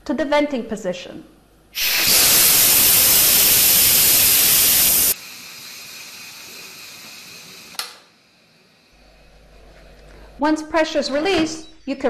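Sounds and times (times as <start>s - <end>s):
steam hissing from valve: 1.8s - 7.8s
faint hiss: 1.8s - 9.0s
click: 7.7s - 8.0s.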